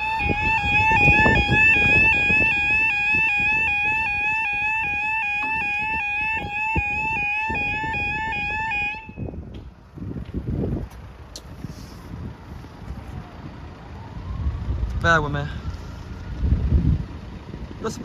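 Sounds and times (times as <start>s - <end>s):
level crossing alarm warbling: 0.0s - 9.4s.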